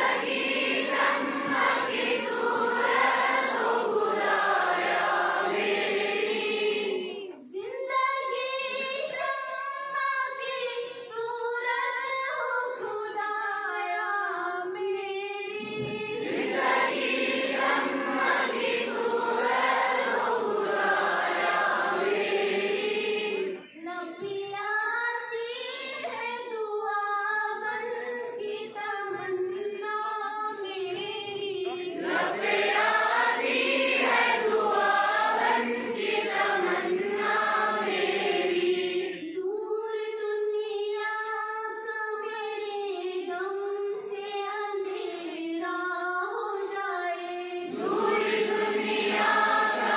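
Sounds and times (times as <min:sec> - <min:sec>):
leading voices singing: 0:00.0 - 0:07.4, 0:15.6 - 0:23.8, 0:31.2 - 0:39.4, 0:47.7 - 0:49.9
children singing together: 0:00.0 - 0:41.0, 0:41.7 - 0:49.9.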